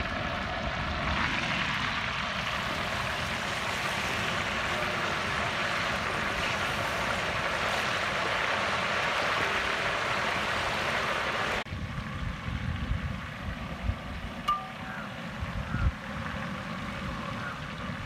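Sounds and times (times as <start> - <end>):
oil sizzling: 1.0 - 11.6.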